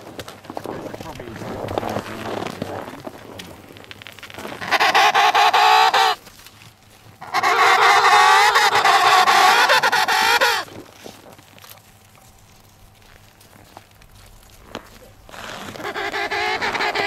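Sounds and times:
penguin warbling calls: 0:04.4 - 0:06.2, 0:07.2 - 0:10.7, 0:15.3 - 0:17.0.

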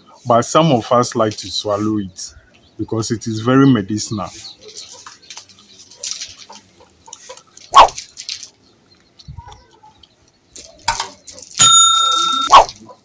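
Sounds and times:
bell chime: 0:11.6 - 0:12.5.

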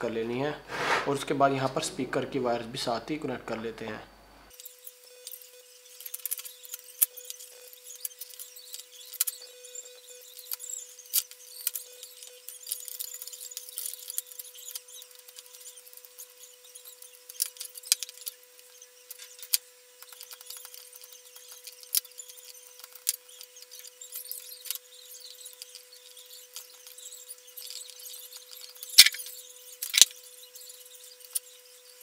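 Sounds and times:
wires and parts clicking: 0:27.6 - 0:30.2.

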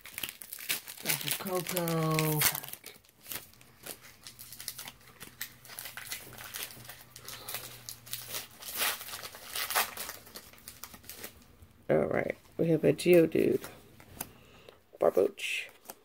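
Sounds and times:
foil pack crinkling and tearing: 0:00.0 - 0:11.5.

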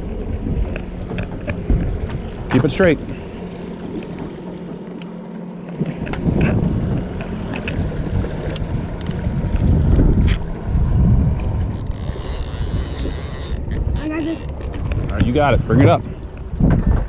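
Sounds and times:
boat engine hum: 0:00.0 - 0:17.0
wind gusting on microphone: 0:05.8 - 0:17.0.

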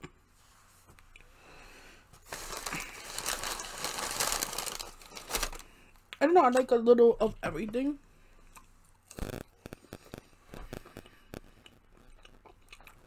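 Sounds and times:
paper bag crinkling: 0:02.2 - 0:05.8.

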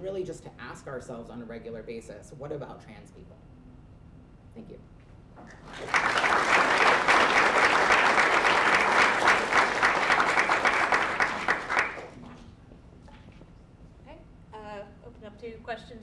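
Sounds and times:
audience applauding: 0:05.4 - 0:12.2.

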